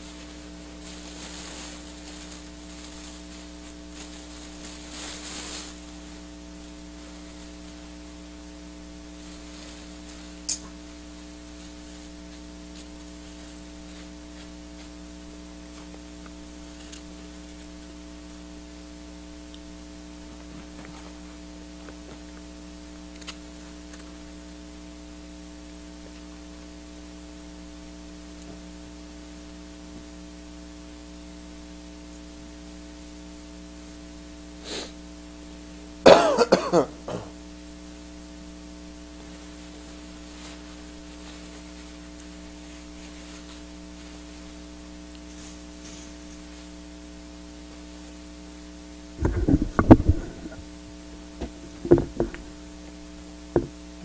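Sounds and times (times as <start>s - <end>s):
electrical mains hum: 0.0s - 54.0s
faint small clicks: 10.5s - 10.8s, 23.1s - 24.1s
person coughing hard: 36.0s - 37.4s
person clearing throat: 36.1s - 37.4s.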